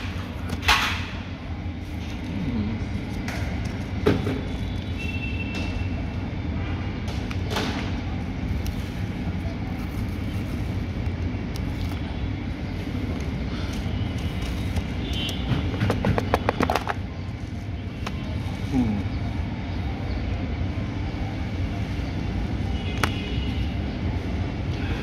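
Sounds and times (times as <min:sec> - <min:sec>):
handling clicks and rustles: 0:14.1 - 0:17.1.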